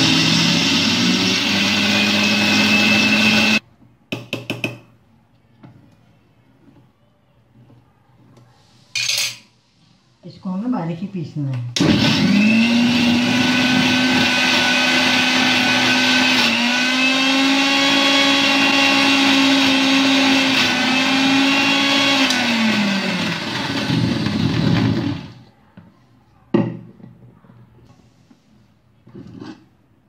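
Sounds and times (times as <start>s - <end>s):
mixer grinder whining: 0.0s - 3.6s, 11.8s - 25.4s.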